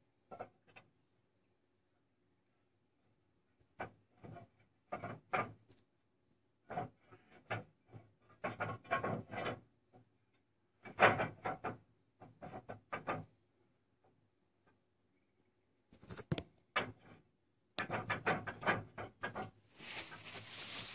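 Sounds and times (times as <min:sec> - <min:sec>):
roof tiles scraping and clacking: 0:06.6 - 0:09.7.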